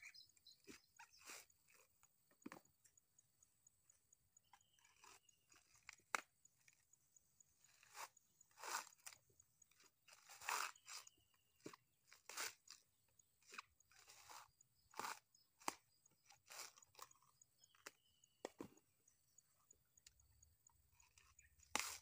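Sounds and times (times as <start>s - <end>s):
coconut husks crunching: 7.8s - 9.2s, 10.1s - 12.8s, 13.5s - 17.3s.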